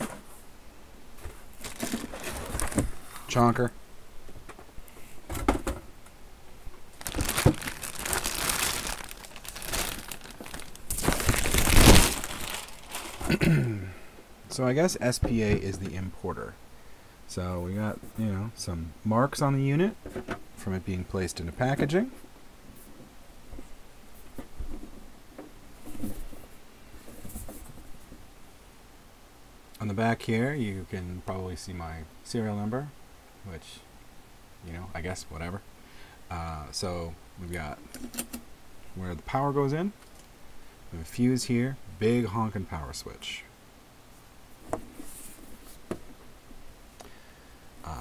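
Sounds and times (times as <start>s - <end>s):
plastic bag crinkling: 1.5s - 3.0s, 6.9s - 13.4s.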